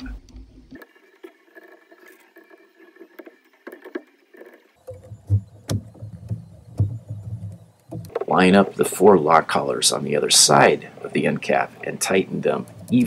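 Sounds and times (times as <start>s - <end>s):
dull knocks and sharp clacks: 0.0s - 8.7s.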